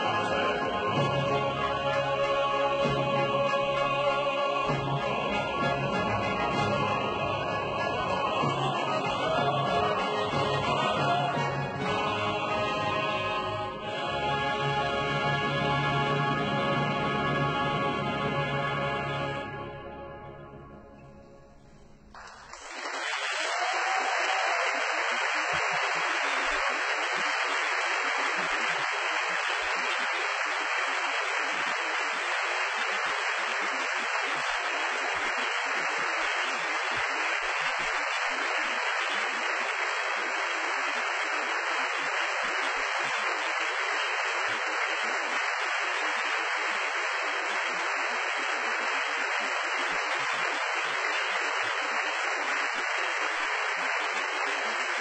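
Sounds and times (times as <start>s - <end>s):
audience applause: 0.0s - 18.0s, 22.1s - 55.0s.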